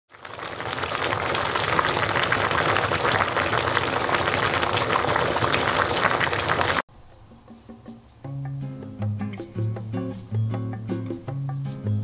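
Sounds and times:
stew bubbling in a pot: 0.1 - 6.9.

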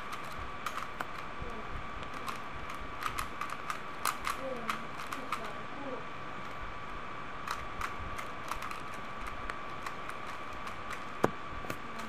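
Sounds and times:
faint whine: 0.0 - 12.0
plastic cube clicks: 2.0 - 5.5, 7.4 - 12.0.

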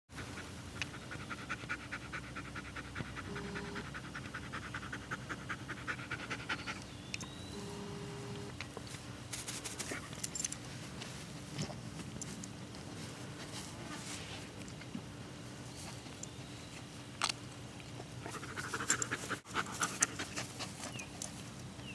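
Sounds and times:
puppy panting: 0.1 - 6.9, 18.1 - 21.4
dog rustling in grass: 8.6 - 14.6, 18.4 - 21.6.

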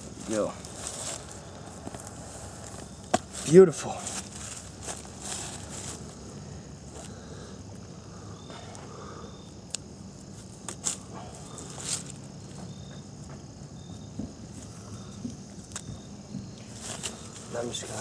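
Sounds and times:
dry leaf litter rustling: 0.0 - 7.1, 10.2 - 12.6, 16.7 - 18.0.

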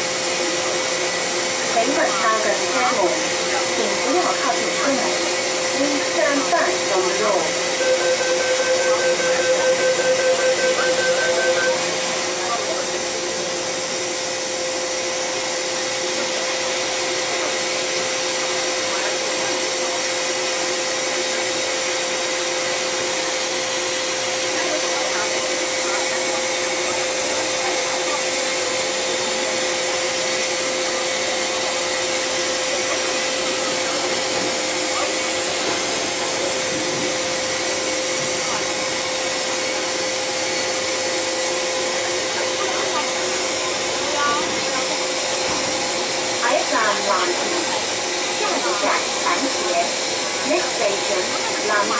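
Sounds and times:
steady tone: 1.2 - 14.9.

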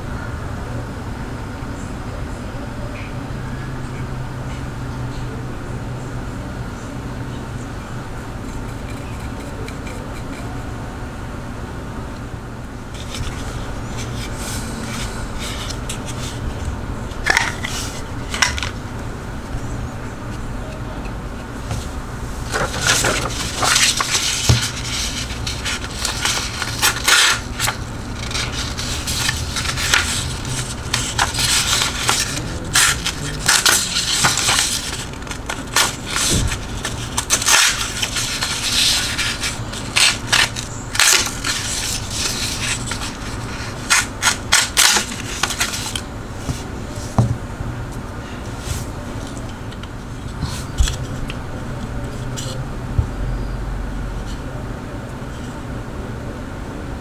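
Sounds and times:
knife cutting through paper: 22.4 - 46.0.

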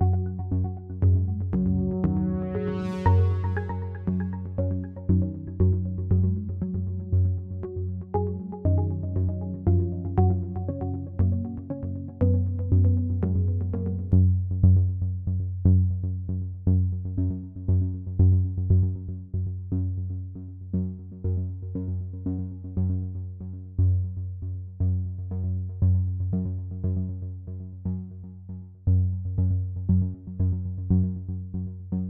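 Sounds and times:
deep bass pulse: 0.0 - 4.4
synthesizer notes: 1.6 - 4.6.

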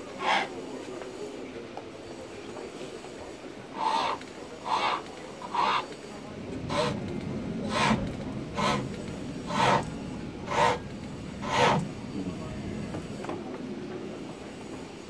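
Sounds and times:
chisel cutting wood on lathe: 3.7 - 12.0.

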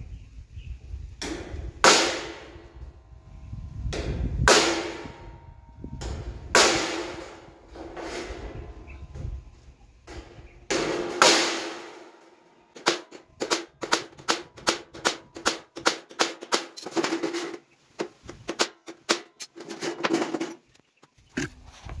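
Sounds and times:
hammer tapping metal sheet: 1.2 - 2.9, 3.9 - 5.4, 6.0 - 8.8, 10.1 - 20.6.

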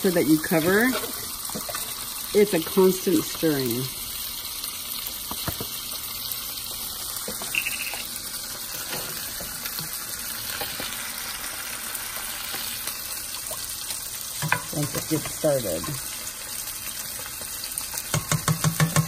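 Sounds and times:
fish fillets sizzling in oil: 0.0 - 19.0.

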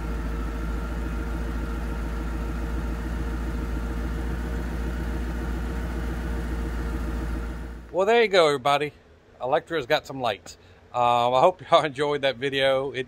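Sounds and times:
car engine idling: 0.0 - 7.9.

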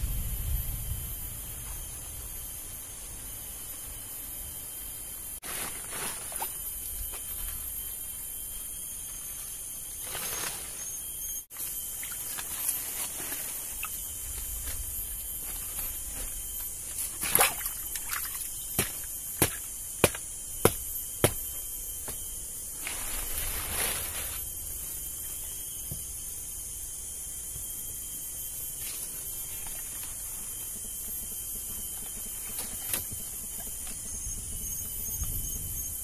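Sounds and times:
forest insects droning: 0.0 - 36.0
hands rustling leaves and sticks: 5.4 - 7.6, 10.0 - 21.4, 22.1 - 24.9.

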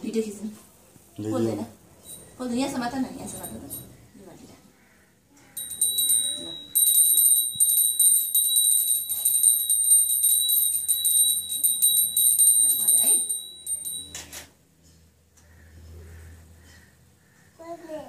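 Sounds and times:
hand bell ringing: 2.0 - 2.4, 3.2 - 3.9, 5.6 - 14.4.

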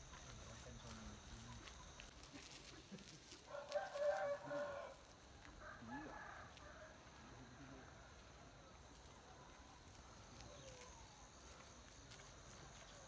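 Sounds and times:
rooster crowing: 3.5 - 7.2.

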